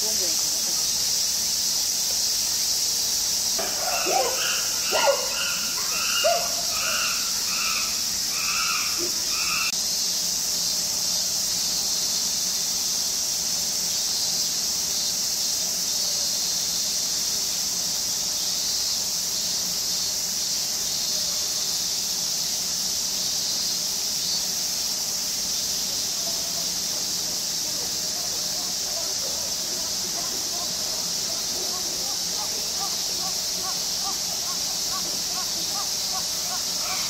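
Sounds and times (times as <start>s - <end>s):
cicadas droning: 0.0s - 37.0s
short repeated calls: 27.9s - 37.0s.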